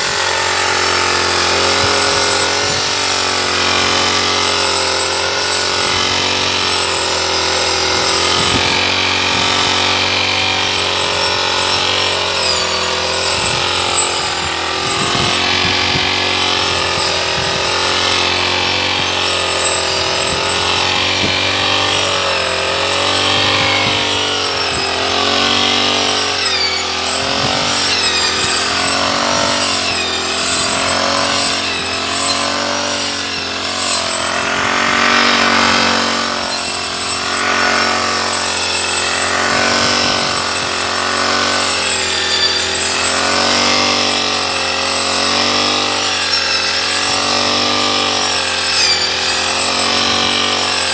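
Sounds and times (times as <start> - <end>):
brush cutter cutting grass: 0.0 - 50.9.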